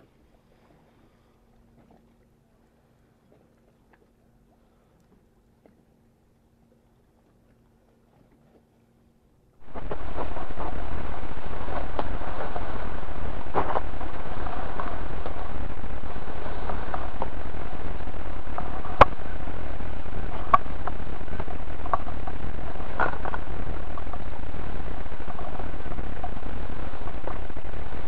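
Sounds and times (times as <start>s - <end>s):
wind buffeting microphone: 9.6s - 28.0s.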